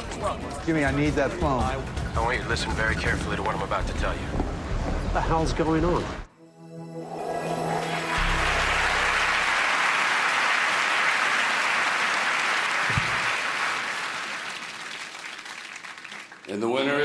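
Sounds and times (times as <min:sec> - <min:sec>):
musical sting with low note: 0:06.4 - 0:09.6
audience applauding: 0:07.8 - 0:17.0.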